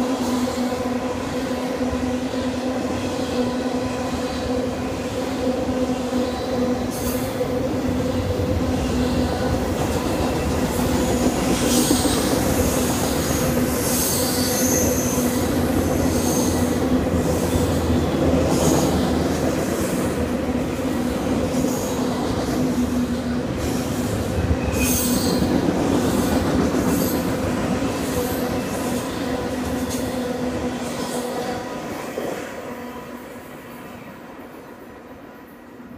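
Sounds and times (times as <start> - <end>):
train wheels squealing: 10.1 - 17.8, 23.6 - 27.4.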